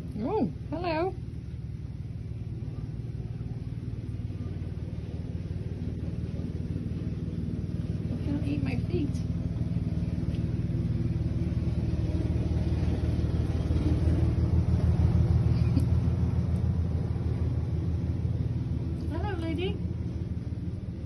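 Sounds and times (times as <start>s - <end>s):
low mechanical rumble: 0.0s - 21.0s.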